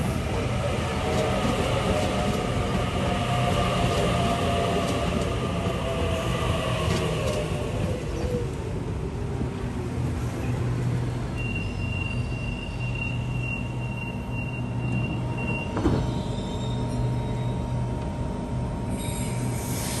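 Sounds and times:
electric train running hum: 0.0s - 20.0s
high-pitched train squeal: 11.4s - 17.8s, 18.9s - 20.0s.

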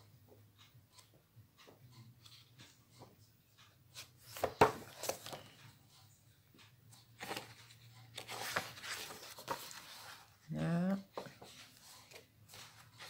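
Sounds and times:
paper pages rustling: 3.9s - 5.6s, 7.2s - 10.5s, 11.1s - 13.0s.

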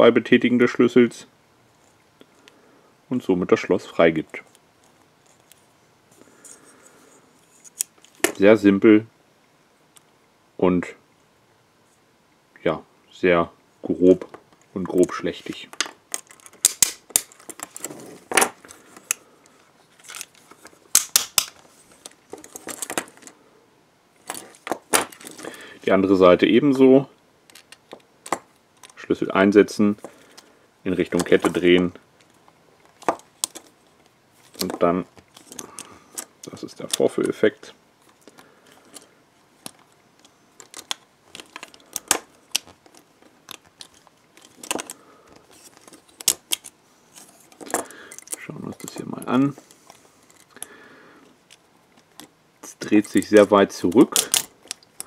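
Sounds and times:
handcuffs clicking and clinking: 15.8s - 17.8s, 34.5s - 37.4s, 38.2s - 45.0s, 45.6s - 46.8s, 47.5s - 50.7s, 51.4s - 55.0s
key clicking in handcuff lock: 54.0s - 54.9s.

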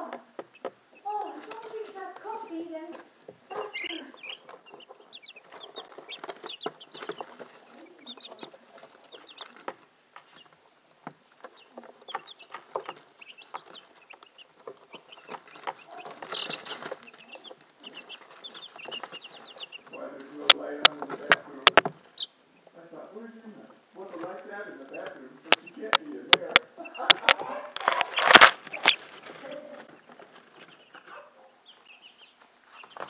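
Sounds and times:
beaks pecking plastic tray: 0.0s - 33.0s
chicks peeping: 0.0s - 33.0s.

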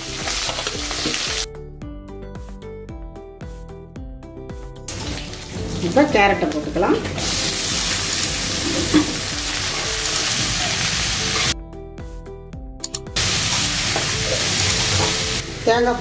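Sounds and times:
vegetables sizzling in hot oil: 0.0s - 1.5s, 4.9s - 11.6s, 13.2s - 16.0s
background music: 0.0s - 16.0s.

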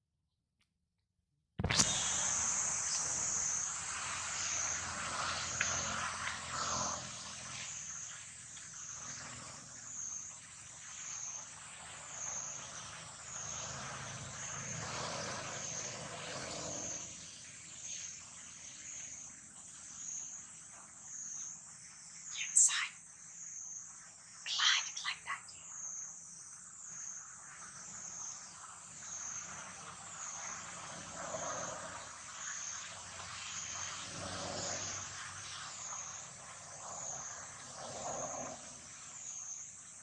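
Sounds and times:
high-pitched insect drone: 1.7s - 40.0s
soft background hiss: 12.0s - 32.7s.

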